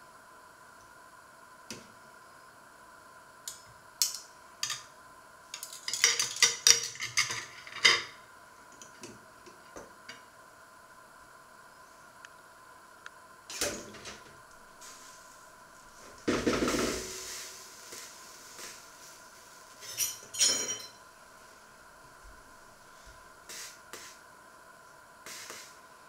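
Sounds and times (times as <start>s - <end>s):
cutlery clinking on plate: 19.8s - 21.0s.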